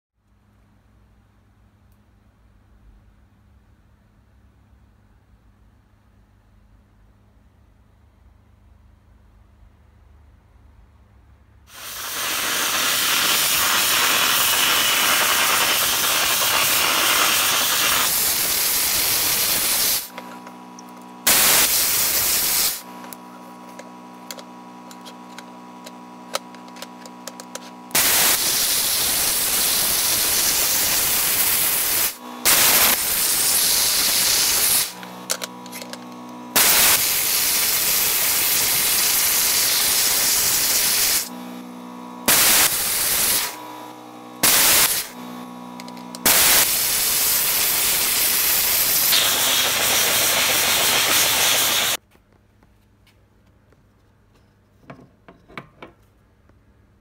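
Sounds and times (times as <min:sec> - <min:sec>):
dry ice blasting gun hissing: 0:11.7 - 0:20.2, 0:21.2 - 0:23.8, 0:27.3 - 0:35.9, 0:36.5 - 0:41.3, 0:42.2 - 0:43.6, 0:44.4 - 0:45.2, 0:46.1 - 0:52.0
machine hum: 0:12.1 - 0:52.0.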